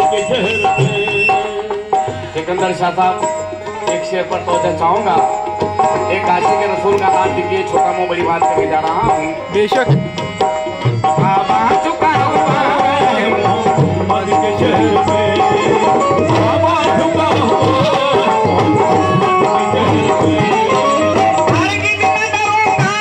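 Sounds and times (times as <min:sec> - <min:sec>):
harmonium chords: 0:00.0 - 0:23.0
tabla drumming: 0:00.0 - 0:23.0
person singing: 0:11.1 - 0:23.0.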